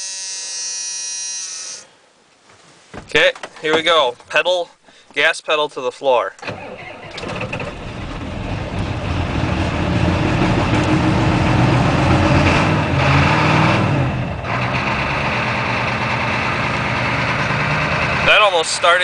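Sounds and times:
diesel engine cold start and idle: 6.4s - 19.0s.

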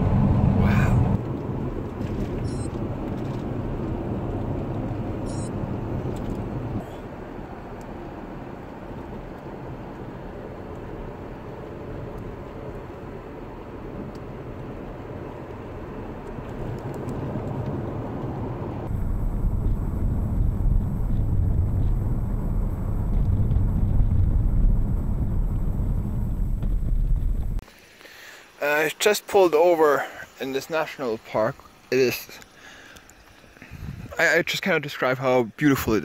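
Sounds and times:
deep rumble: 0.0s - 6.9s, 16.6s - 27.6s
car engine and tyre noise: 0.0s - 28.6s, 30.3s - 36.0s.

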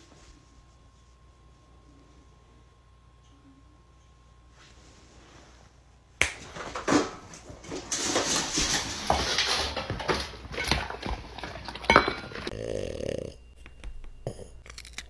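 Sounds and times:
dogs eating: 7.6s - 13.1s
metal bowls clinking: 8.0s - 12.5s.

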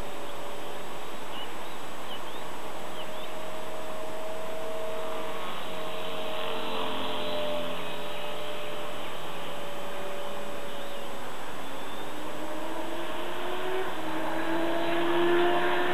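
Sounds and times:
model helicopter motor whine: 4.4s - 12.2s.

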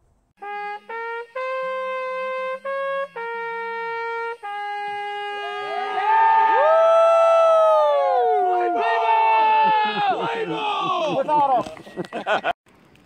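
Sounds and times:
horn playing slow tune: 0.4s - 8.8s
people whooping: 5.3s - 11.4s.

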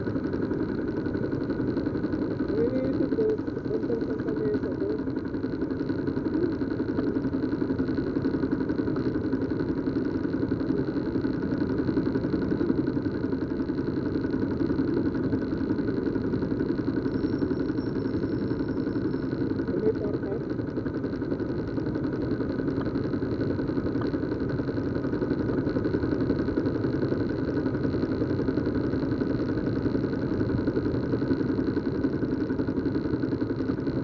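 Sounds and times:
vehicle engines idling: 0.0s - 7.6s, 10.0s - 29.4s.

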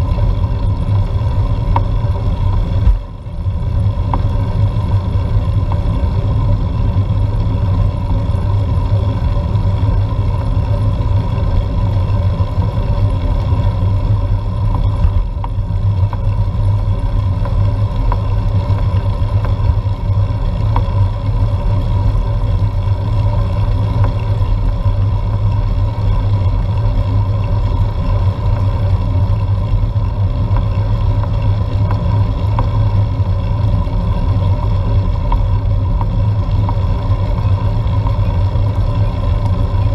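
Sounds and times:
faint constant drone: 0.0s - 39.9s.

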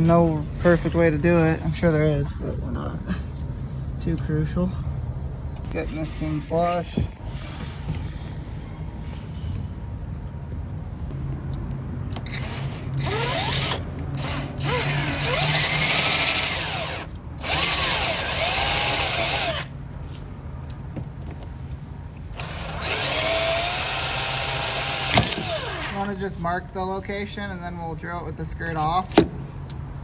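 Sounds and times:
cordless drill boring plastic: 12.3s - 19.7s, 22.4s - 26.0s.

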